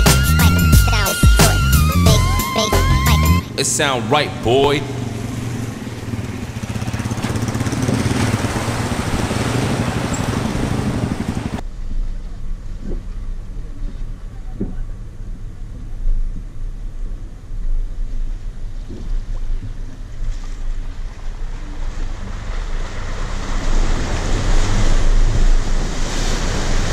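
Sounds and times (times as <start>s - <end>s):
off-road vehicle engine running: 0.0s - 26.9s
loud rushing noise: 3.4s - 11.6s.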